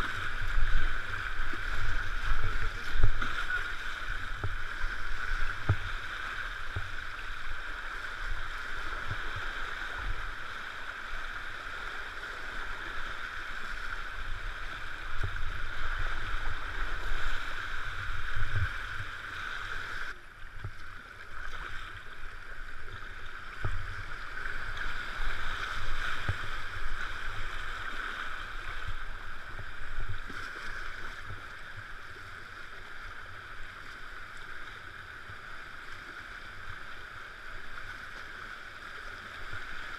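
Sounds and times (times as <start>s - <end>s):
rushing whitewater: 0.0s - 20.4s, 21.1s - 39.9s
paddle strokes: 0.0s - 39.9s
water splashing against kayak: 0.0s - 39.9s.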